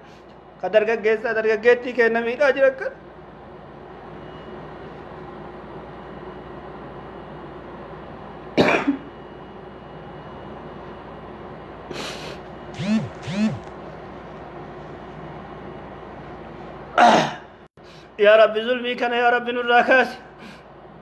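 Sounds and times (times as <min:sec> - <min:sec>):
man coughing: 0:08.6 - 0:09.1, 0:17.0 - 0:17.6
noisy breath: 0:11.9 - 0:12.5, 0:17.8 - 0:18.2, 0:20.3 - 0:20.8.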